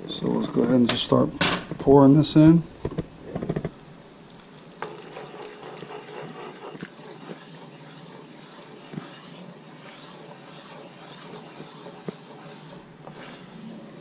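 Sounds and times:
sauce boiling in a skillet: 3.3 - 14.0.

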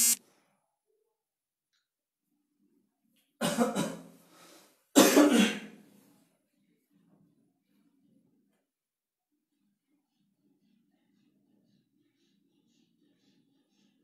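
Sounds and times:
man coughing: 5.0 - 5.8.

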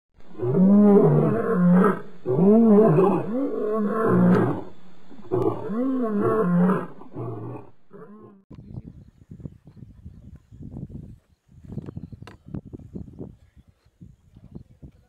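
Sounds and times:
deep animal roars: 0.2 - 8.4.

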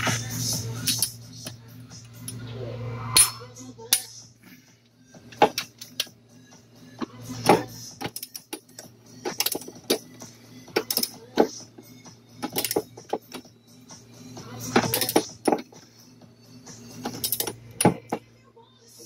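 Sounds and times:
low steady hum: 0.0 - 19.0
metallic clicks of hand tools: 8.0 - 10.0, 10.8 - 11.2, 12.4 - 13.4, 17.1 - 17.9.

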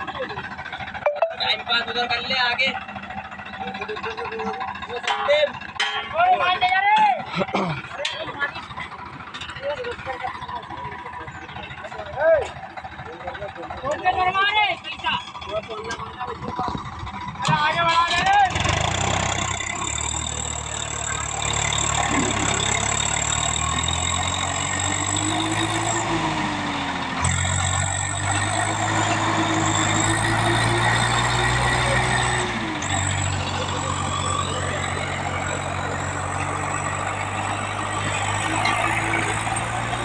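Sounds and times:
diesel tractor engine running: 0.0 - 40.0.

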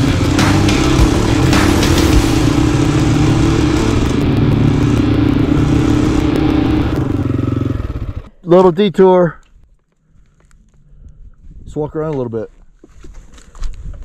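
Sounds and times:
dirt bike engine running: 0.0 - 8.4.

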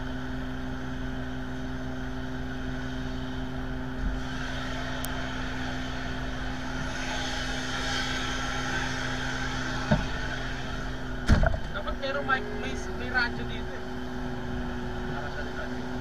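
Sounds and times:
jet engines idling: 0.0 - 16.0.

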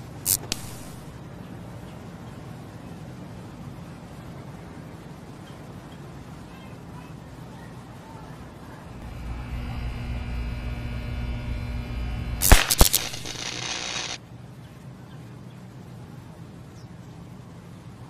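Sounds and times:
power line arcing cracks: 0.0 - 1.1, 9.0 - 14.2
sizzling electrical buzz: 0.0 - 1.1, 9.0 - 14.2
electrical hum: 0.0 - 1.2, 8.8 - 14.2.

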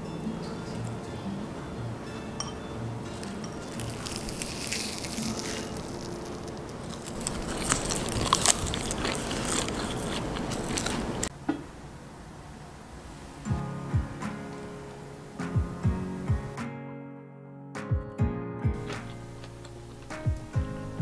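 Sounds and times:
seaweed crackling and crunching: 3.1 - 11.3.

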